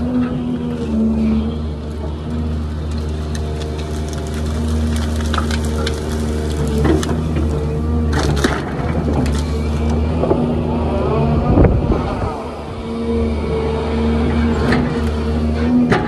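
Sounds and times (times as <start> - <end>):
wood crunching: 1.3 - 10.5.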